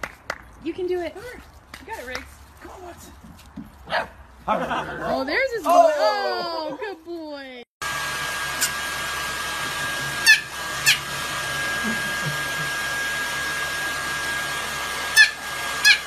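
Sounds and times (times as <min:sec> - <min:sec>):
hair dryer running with high whine: 0:07.8 - 0:16.0.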